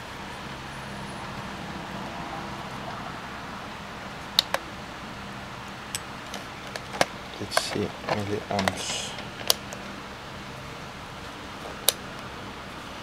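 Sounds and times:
steady hiss: 3.3s - 13.0s.

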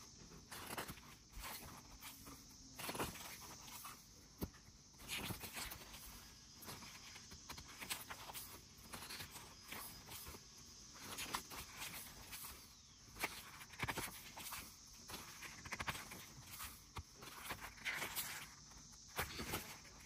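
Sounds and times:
pages turning: 11.0s - 18.6s.

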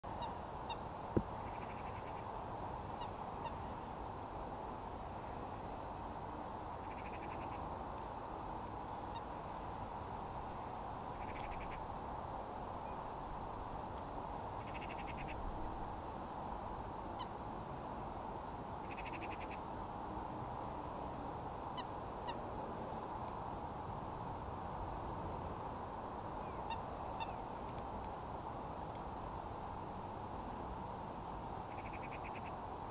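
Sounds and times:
din of distant birds: 0.1s - 4.0s, 6.8s - 7.7s, 10.4s - 12.0s, 18.8s - 19.7s, 26.3s - 27.8s, 29.8s - 32.7s
rapid rattling bird call: 11.2s - 11.8s, 14.6s - 15.4s, 18.8s - 19.6s, 31.7s - 32.5s.

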